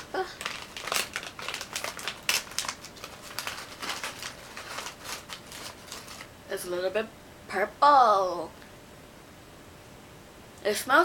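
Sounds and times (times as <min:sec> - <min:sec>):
snack bag crinkling: 0:00.0 - 0:06.3.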